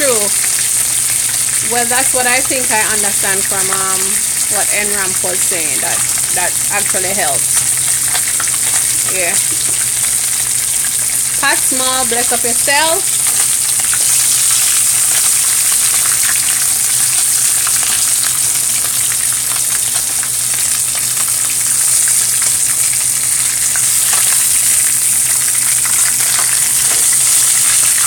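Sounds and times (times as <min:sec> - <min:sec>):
food sizzling in oil: 0:00.0 - 0:28.0.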